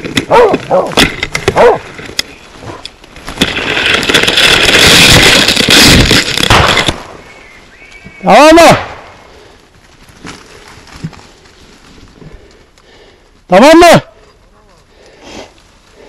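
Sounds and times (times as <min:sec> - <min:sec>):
branches rustling past microphone: 0:00.0 - 0:08.3, 0:09.0 - 0:12.8
dog barking: 0:00.3 - 0:01.8.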